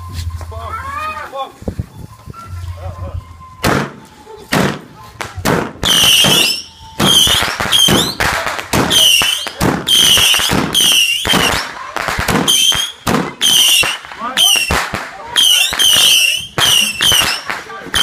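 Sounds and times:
firework cracks: 0:03.6 - 0:18.0
whistling firework shots: 0:03.6 - 0:18.0.

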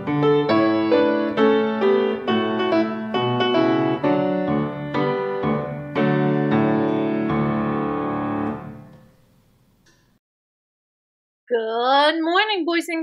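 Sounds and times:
piano playing light melody: 0:00.0 - 0:09.2.

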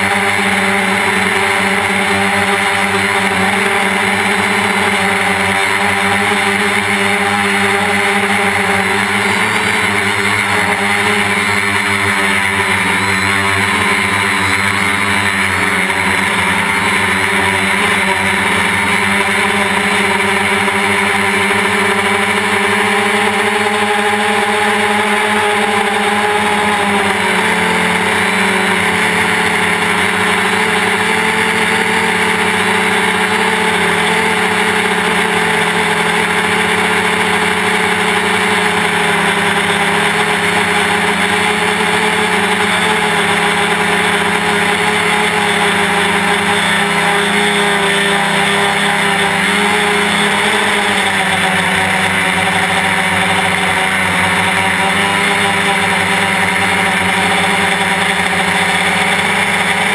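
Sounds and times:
drone motors and propellers droning: 0:00.0 - 0:59.9.

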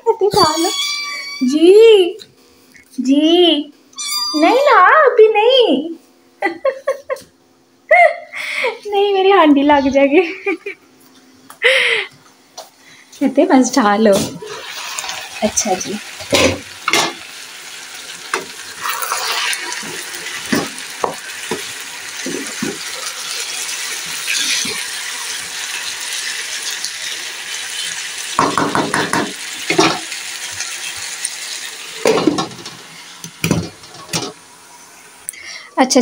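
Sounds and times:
potatoes sizzling in a pan: 0:13.6 - 0:36.0.

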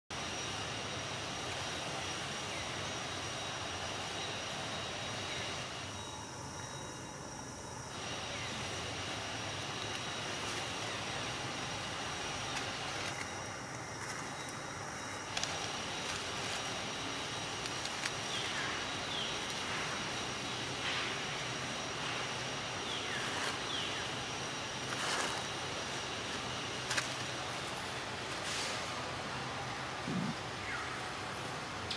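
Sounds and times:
low rumble and hiss: 0:00.1 - 0:31.9
faint high steady tones: 0:00.2 - 0:31.9
dry leaves rustling: 0:08.0 - 0:29.4.

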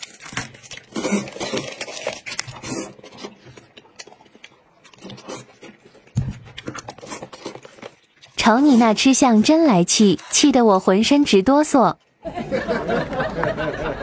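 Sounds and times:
chewing and slurping food: 0:00.7 - 0:10.4.

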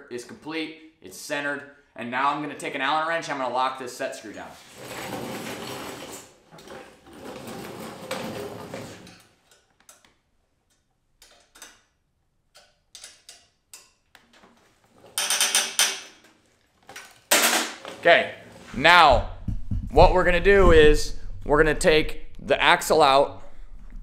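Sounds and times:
small metal clicks: 0:09.1 - 0:14.3
metal rattle: 0:15.0 - 0:17.9.

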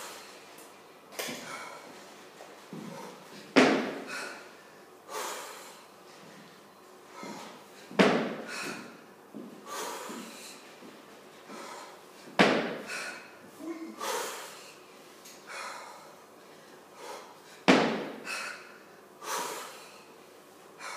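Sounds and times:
woman's quiet breaths: 0:12.8 - 0:17.6.

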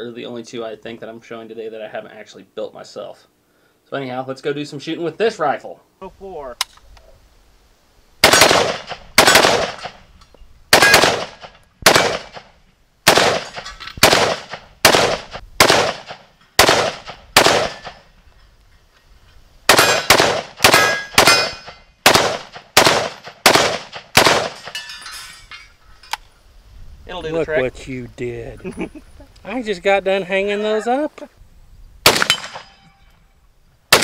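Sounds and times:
rifle shots: 0:08.2 - 0:10.0, 0:10.7 - 0:18.1, 0:19.7 - 0:24.7, 0:32.0 - 0:32.8
bullets ringing on steel targets: 0:19.8 - 0:20.1, 0:20.7 - 0:21.9, 0:24.5 - 0:25.7.

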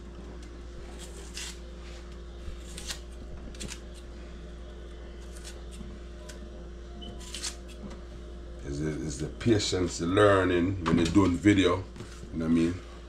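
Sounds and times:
knife scraping onion skin: 0:00.9 - 0:01.6, 0:02.5 - 0:04.1, 0:05.2 - 0:05.8, 0:07.1 - 0:07.8.

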